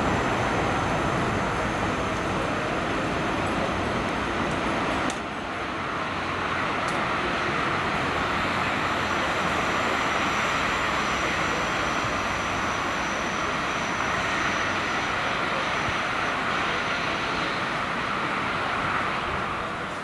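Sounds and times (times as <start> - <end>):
diesel locomotive running: 0.0 - 20.0.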